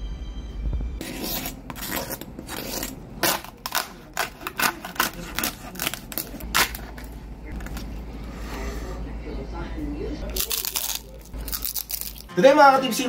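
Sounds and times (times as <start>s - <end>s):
knife crunching through crisp skin: 1.0s - 7.1s, 10.3s - 12.3s.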